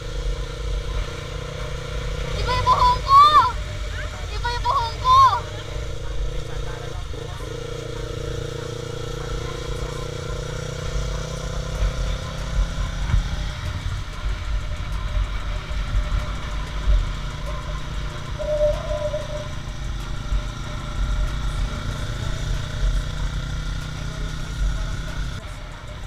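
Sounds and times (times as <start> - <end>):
motorcycle engine running: 0.0 - 26.0
short high tone: 18.4 - 19.7.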